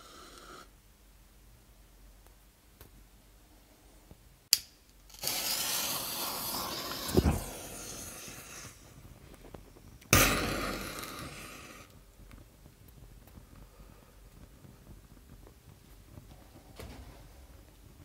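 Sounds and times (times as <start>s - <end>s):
pyrotechnic hissing sparks: 5.1s - 13.5s
thump: 7.1s - 7.6s
sharp crack: 10.0s - 11.9s.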